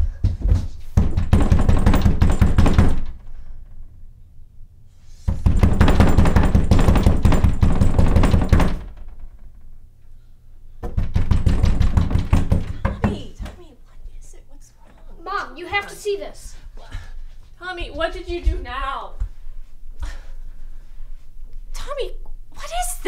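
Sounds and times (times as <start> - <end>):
pounding on a door: 0.1 - 3.3, 5.3 - 9.4, 10.8 - 13.6.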